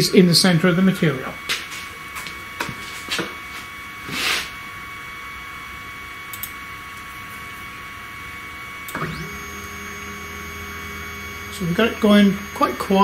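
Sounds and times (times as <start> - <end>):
faint electrical whine: 0.0 - 13.0
stepper motors whining: 8.8 - 13.0.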